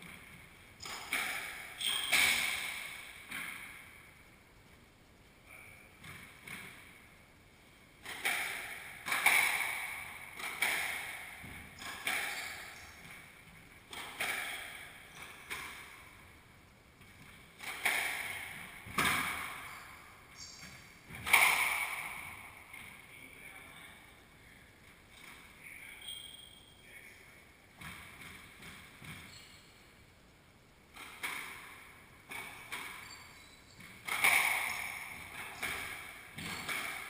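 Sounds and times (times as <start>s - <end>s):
squash ball hits echoing: 0.0s - 4.0s, 8.0s - 16.4s, 17.0s - 23.0s, 30.9s - 33.1s, 33.8s - 37.0s.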